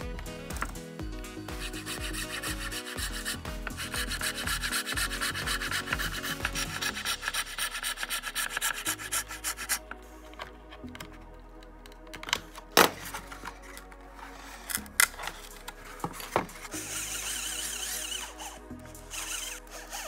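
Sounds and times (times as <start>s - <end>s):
hacksaw cutting wood: 1.6s - 9.8s.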